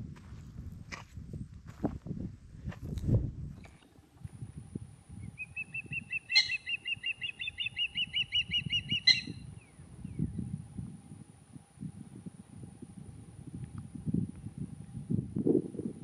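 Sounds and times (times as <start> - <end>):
bird chirping rapidly: 5.2 - 9.5.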